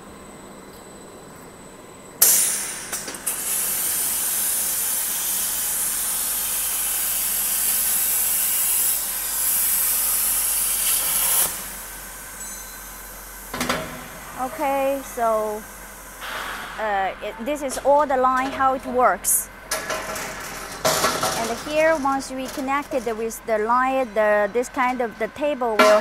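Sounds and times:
plasma cutter hissing: 2.2s - 12.2s.

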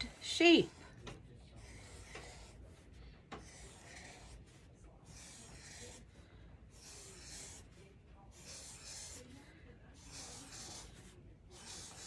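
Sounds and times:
marker scratching on paper: 0.0s - 12.0s.

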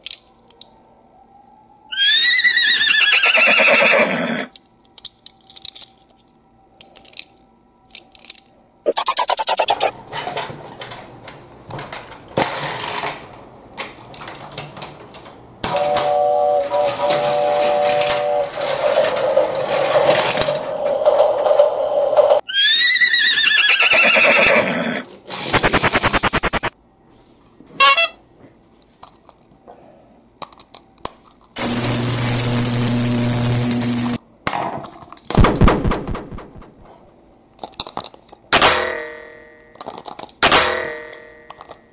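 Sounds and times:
toy electronic tune: 15.8s - 18.5s
buzzing tones: 25.5s - 26.7s, 31.6s - 34.2s.

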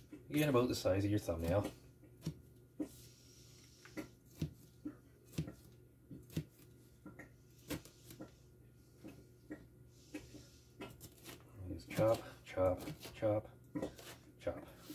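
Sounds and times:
knife chopping on cutting board: 4.3s - 4.7s, 5.3s - 6.6s.

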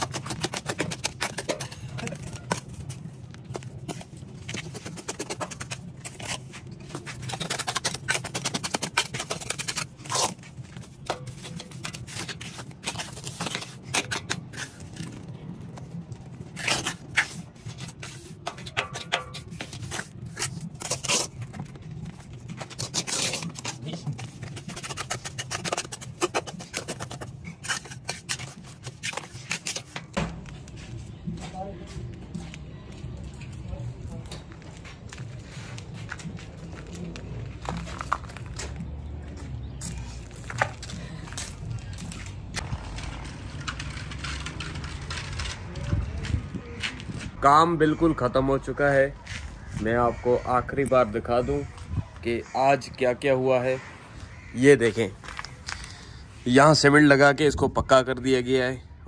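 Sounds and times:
trowel scraping wet mortar: 0.0s - 2.8s, 4.4s - 15.2s, 16.5s - 30.0s.

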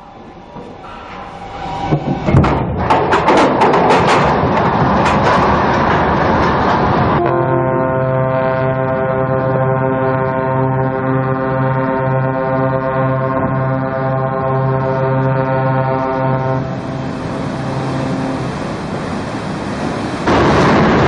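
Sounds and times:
ship hull scraping down ways: 0.0s - 7.6s, 13.4s - 21.0s
knocks and cracks: 2.3s - 6.8s
ship's horn blast: 4.2s - 21.0s.

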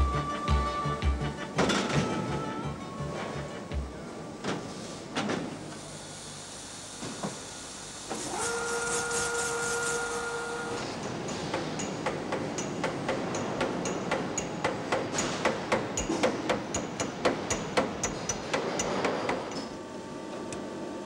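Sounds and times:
steady machine hum: 0.0s - 4.5s
hammer blows on metal: 11.3s - 19.2s.

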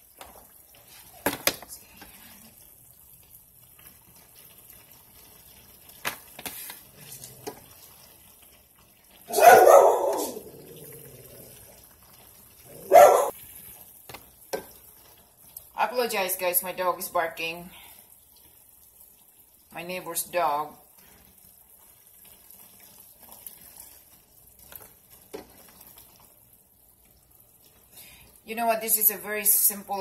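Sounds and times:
dog barking: 9.3s - 10.6s, 12.7s - 13.3s.

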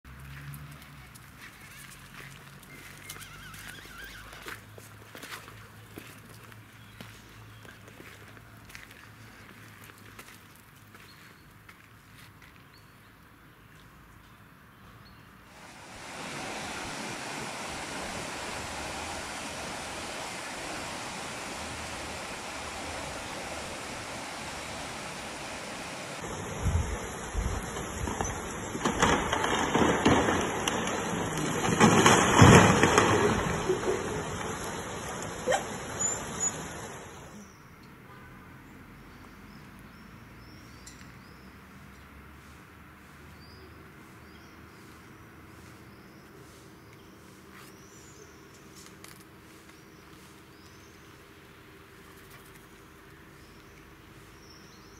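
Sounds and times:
heavy rain pouring: 15.5s - 37.4s
low rumbling surges: 15.5s - 37.4s
strong wind gusts: 15.5s - 37.4s.

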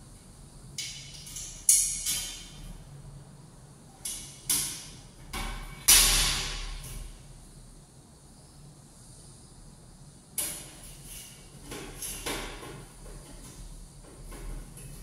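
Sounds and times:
sharp knock on metal frame: 4.5s - 6.8s.

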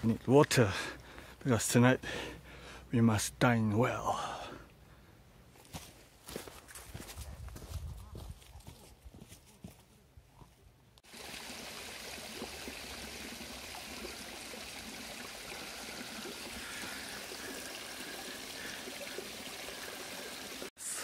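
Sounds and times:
water running from pipes: 11.0s - 21.0s.

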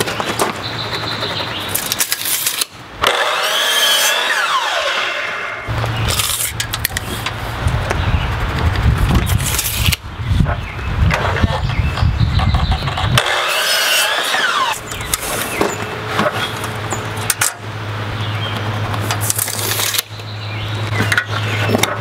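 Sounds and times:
falling whirr: 0.0s - 10.0s, 12.4s - 17.0s
tape measure rattling and clicking: 1.2s - 4.3s, 6.1s - 7.4s, 8.5s - 10.0s, 18.9s - 20.1s.

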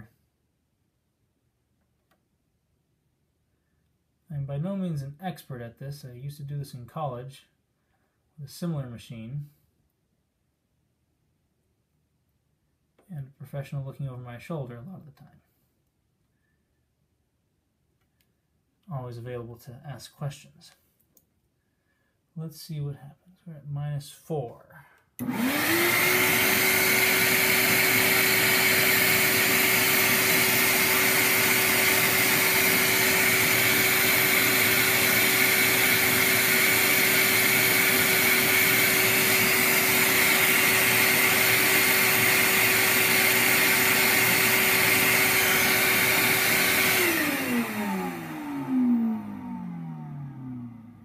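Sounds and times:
machine spinning down: 25.2s - 51.0s.

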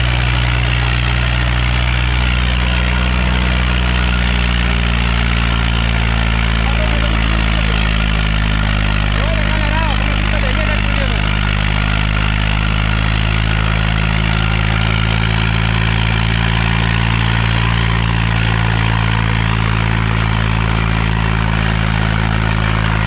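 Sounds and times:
tractor diesel engine running: 0.0s - 23.0s.

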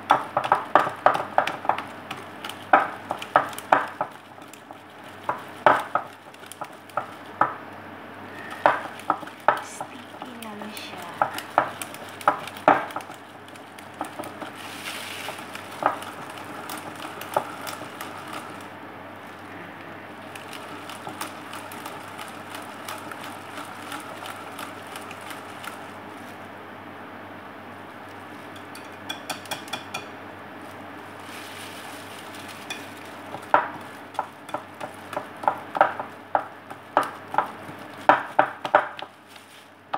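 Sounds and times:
wet swishing of batter stirring: 0.2s - 7.4s, 8.5s - 19.5s, 30.7s - 39.9s
utensil clicking against glass bowl: 28.6s - 30.1s.

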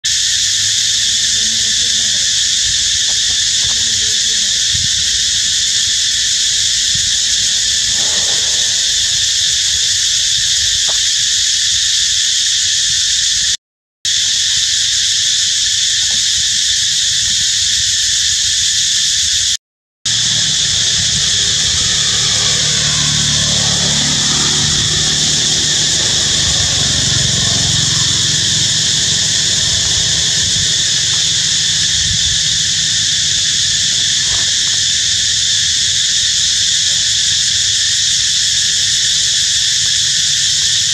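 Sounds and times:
high-pitched insect chorus: 0.0s - 40.9s
low rumble: 20.1s - 33.9s.

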